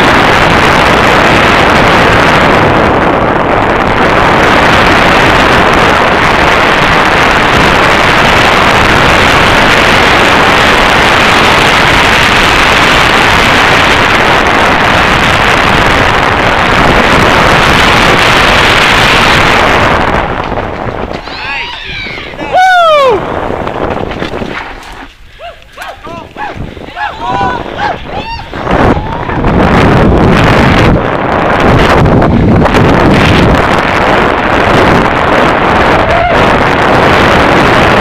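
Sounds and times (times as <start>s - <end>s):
tyres rumbling on dirt trail: 0.0s - 38.0s
wind buffeting microphone: 0.0s - 38.0s.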